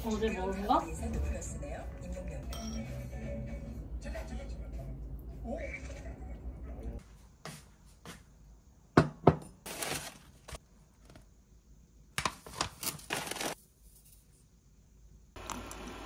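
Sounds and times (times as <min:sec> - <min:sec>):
mug knocking on wooden shelf: 0:09.0 - 0:09.4
paper wrapper crinkling and tearing: 0:09.7 - 0:11.2, 0:12.2 - 0:13.6.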